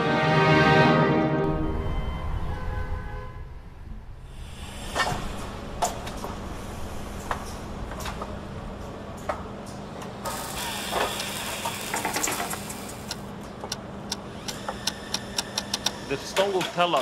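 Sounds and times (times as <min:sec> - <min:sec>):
polishing wheel humming: 0:10.3 - 0:16.3
scattered clicks: 0:11.2 - 0:17.0.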